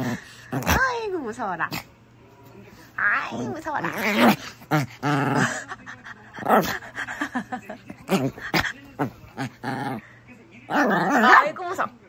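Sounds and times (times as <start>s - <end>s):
dog growling and whining: 3.0s - 5.6s, 8.0s - 10.0s, 10.7s - 11.5s.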